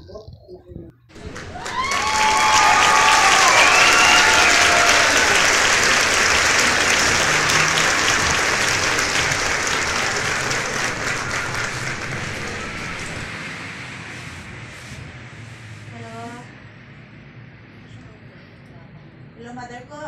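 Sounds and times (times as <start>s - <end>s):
crowd applause: 1.1s - 13.4s.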